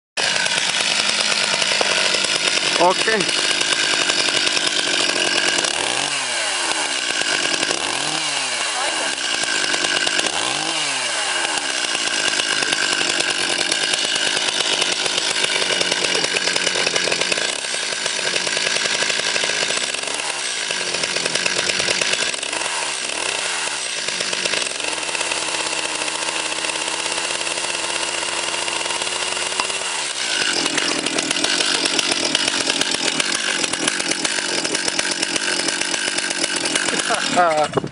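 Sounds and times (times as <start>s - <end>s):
chainsaw engine revving: 0.2s - 37.9s.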